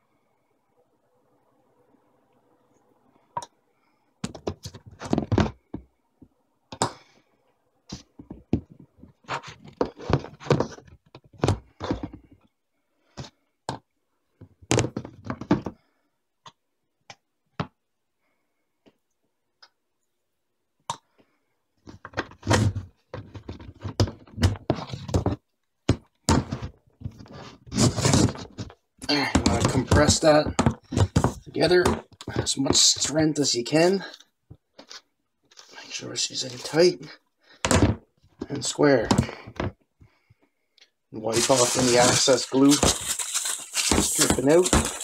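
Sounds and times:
plastic pipes knocking and clacking: 0:28.0 - 0:32.9.

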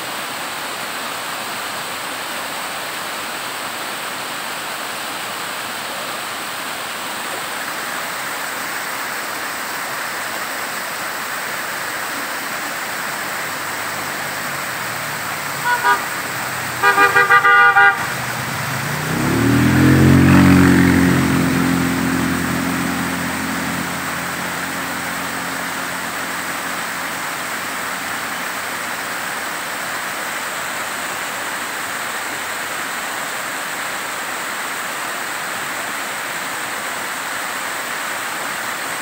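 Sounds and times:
water rushing down rock: 0:00.5 - 0:39.0
motor vehicle passing: 0:12.7 - 0:29.3
vehicle horn toots: 0:15.5 - 0:20.6.

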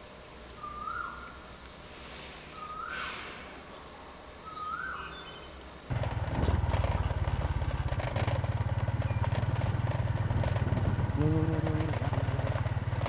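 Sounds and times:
motorcycle engine running: 0:05.9 - 0:13.0.

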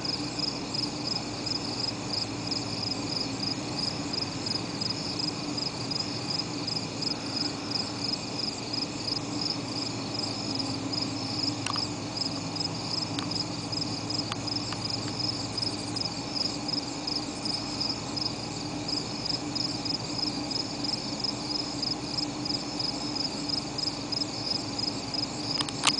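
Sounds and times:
insects chirring: 0:00.0 - 0:25.9
steady low hum: 0:00.0 - 0:25.9.

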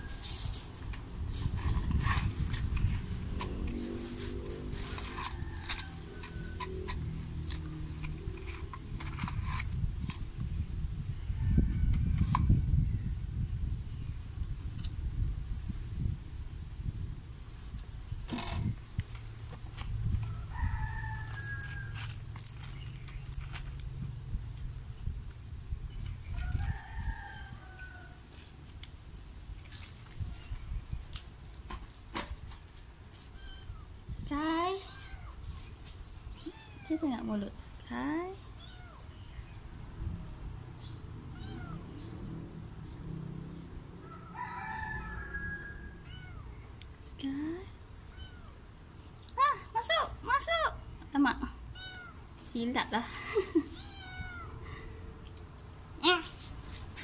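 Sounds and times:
rooster crowing: 0:05.2 - 0:07.1, 0:11.2 - 0:13.1, 0:20.3 - 0:22.1, 0:26.4 - 0:28.2, 0:44.0 - 0:46.3.

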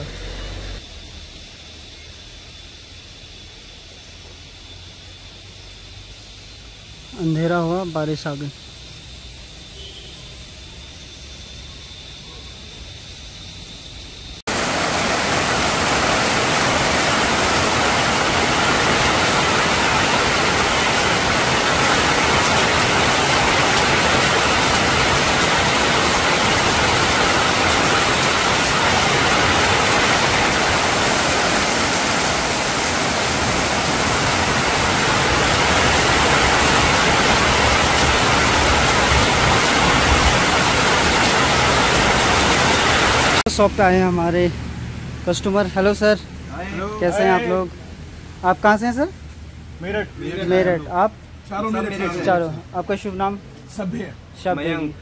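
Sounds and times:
heavy rain falling: 0:14.4 - 0:43.9.

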